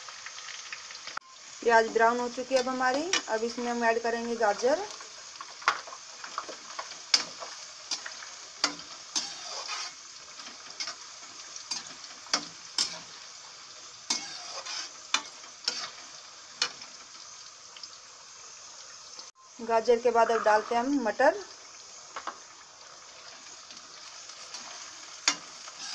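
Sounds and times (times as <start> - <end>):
vegetables sizzling in hot oil: 0.0 - 25.9
metal spatula scraping a pan: 2.4 - 3.5, 5.4 - 17.0, 24.4 - 25.9.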